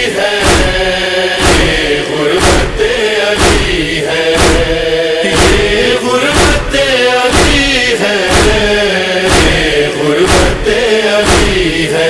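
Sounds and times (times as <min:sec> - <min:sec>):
wordless vocal chorus chanting: 0:00.0 - 0:12.0
heavy thumping beat: 0:00.3 - 0:12.0.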